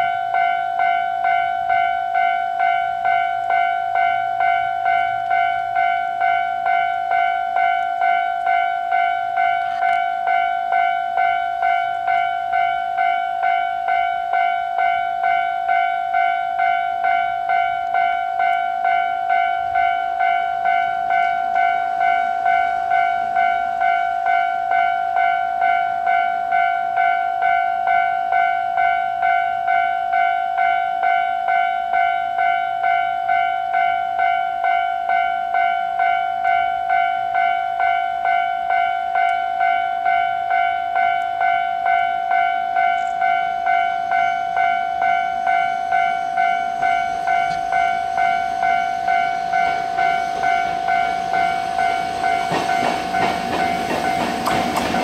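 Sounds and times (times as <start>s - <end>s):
level crossing alarm dinging: 0.0s - 55.0s.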